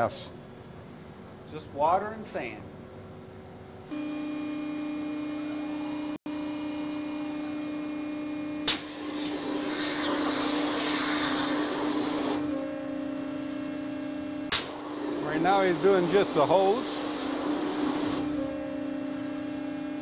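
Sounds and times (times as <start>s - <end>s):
machine humming: 2.8s - 20.0s
waterjet pop and hiss: 8.7s - 12.4s, 14.5s - 15.2s.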